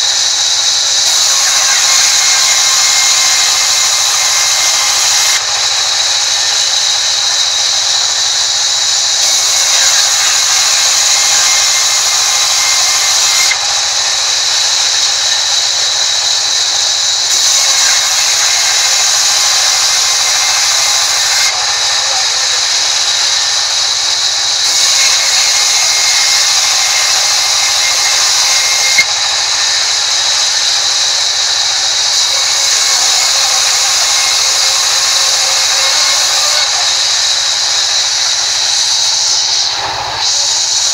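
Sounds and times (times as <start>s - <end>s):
constant high tone: 0.0s - 40.9s.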